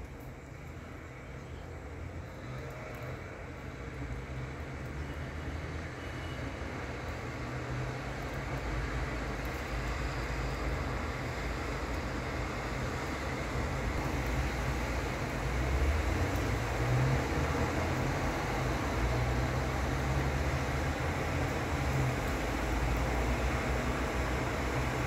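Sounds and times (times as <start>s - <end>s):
traffic engine rumble: 0.0s - 25.0s
tyres hissing on wet road: 0.8s - 25.0s.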